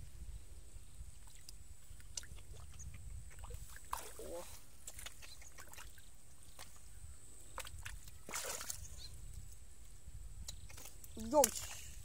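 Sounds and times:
hands sloshing in muddy water: 1.2 - 6.8, 7.5 - 9.1
water splashes: 1.2 - 6.9, 7.5 - 9.2, 10.5 - 12.0.

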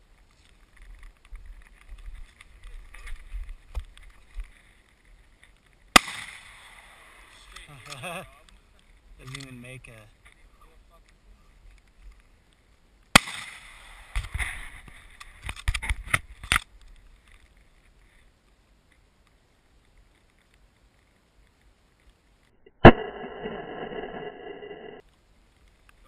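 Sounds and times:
gunshot: 5.9 - 7.0, 13.1 - 14.3.

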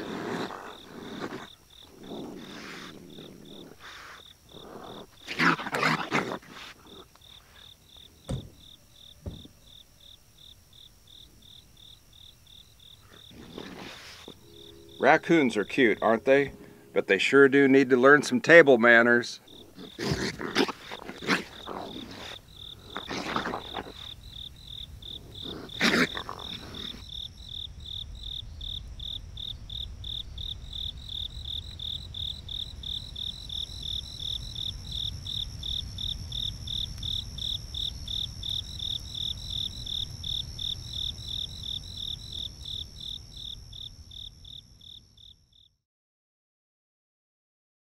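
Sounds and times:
raccoons harsh noises: 0.0 - 8.7, 12.9 - 17.3, 18.9 - 27.1
insects chirping trill: 0.0 - 45.8.

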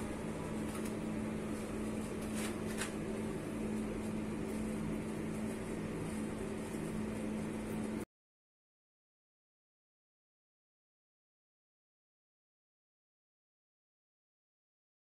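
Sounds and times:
low machine hum: 0.0 - 8.1.

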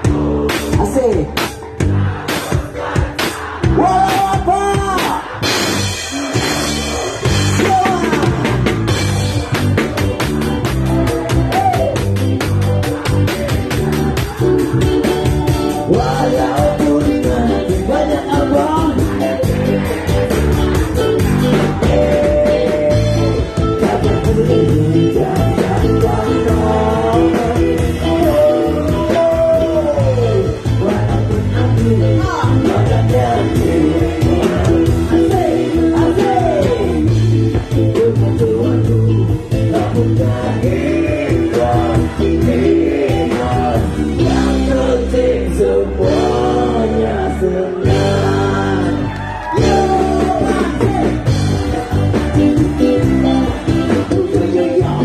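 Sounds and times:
heavy bass: 0.0 - 55.0
live band playing: 0.0 - 55.0
person singing: 12.8 - 51.3, 52.5 - 55.0.

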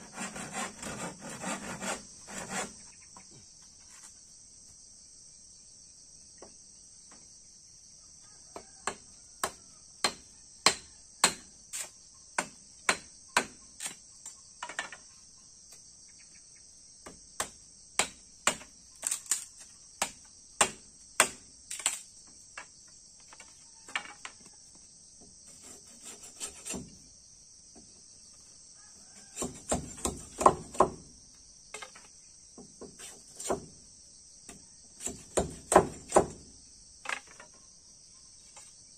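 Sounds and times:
crickets trilling: 0.0 - 38.9
knife chopping wood: 8.8 - 11.5, 17.1 - 19.4, 20.0 - 21.4, 25.6 - 27.0, 29.3 - 31.1, 32.8 - 33.7, 35.0 - 36.5.

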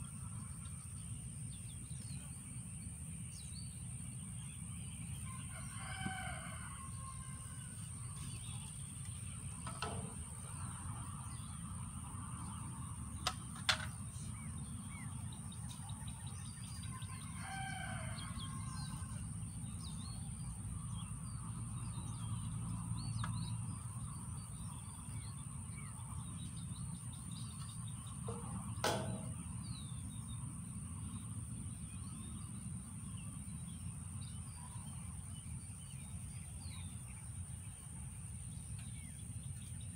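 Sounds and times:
birds calling and chirping: 0.0 - 39.9
sharp knocks: 28.3 - 29.6.

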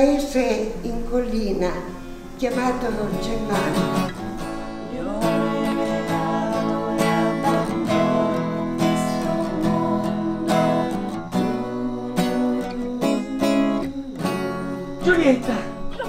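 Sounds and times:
acoustic guitar strumming chords: 1.5 - 16.0.

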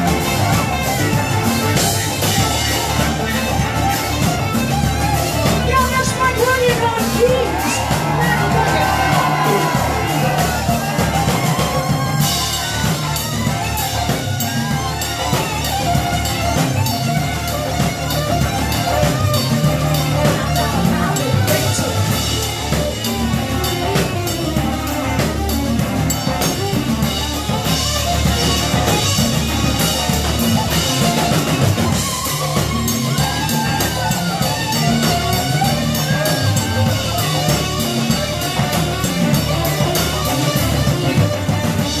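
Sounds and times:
drum kit beat: 0.0 - 42.0
melodic instruments: 0.0 - 42.0.

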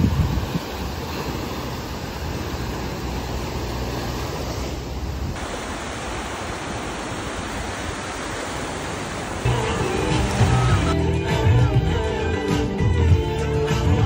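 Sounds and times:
small waves breaking on beach: 0.0 - 11.0.

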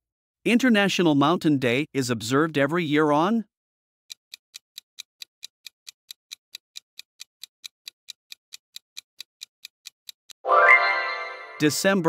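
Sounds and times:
clock ticking: 4.1 - 10.4.

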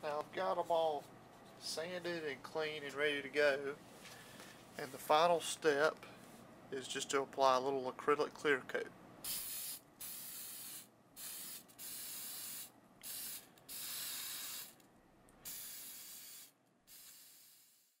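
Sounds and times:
aerosol can spraying: 9.2 - 14.8, 15.4 - 18.0.

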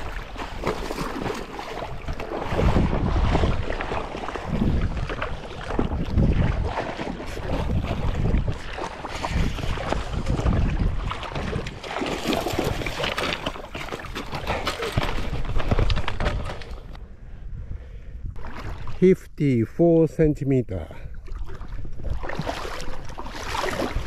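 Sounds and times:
wind gusts buffeting microphone: 1.8 - 19.0.

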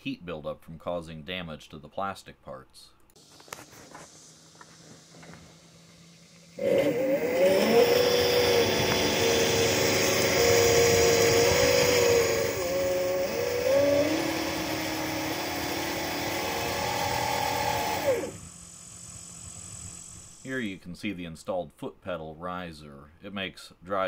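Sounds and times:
electric motor whining: 3.2 - 20.5.

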